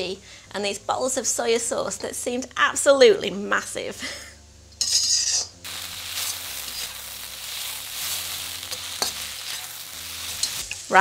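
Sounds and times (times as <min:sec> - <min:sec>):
metal spatula scraping a wok: 0:04.8 - 0:10.9
onions sizzling in oil: 0:04.8 - 0:11.0.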